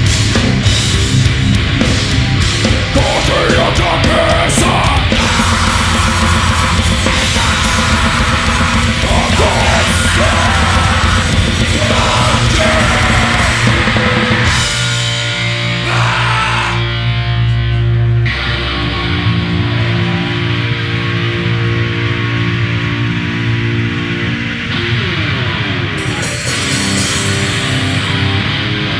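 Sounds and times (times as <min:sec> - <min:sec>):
fast drums with cymbals: 0:00.0 - 0:16.4
distorted electric guitars: 0:00.0 - 0:28.9
person singing: 0:02.9 - 0:14.0.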